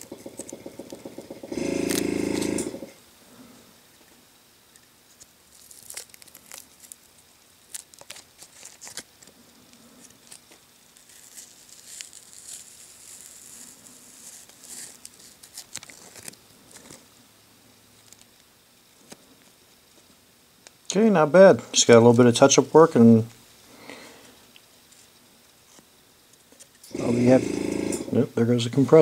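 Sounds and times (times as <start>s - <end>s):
masking tape peeling and crinkling: 0.0s - 2.9s, 5.1s - 17.1s, 17.9s - 20.8s.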